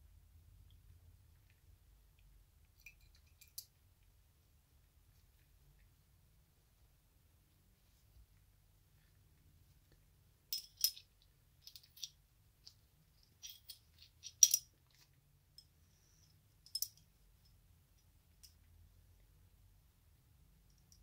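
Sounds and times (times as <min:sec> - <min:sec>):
metal pistol parts clicking: 0:10.6 - 0:12.1, 0:13.4 - 0:14.7.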